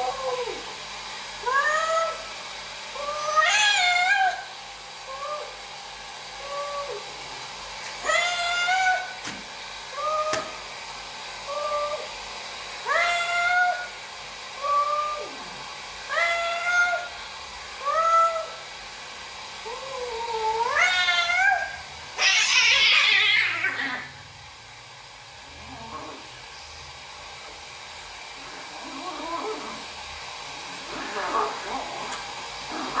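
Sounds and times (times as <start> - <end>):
cats yowling: 3.0 - 4.5, 8.0 - 9.2, 12.9 - 13.9, 19.9 - 24.1
cat hissing: 20.4 - 24.2, 30.6 - 33.0.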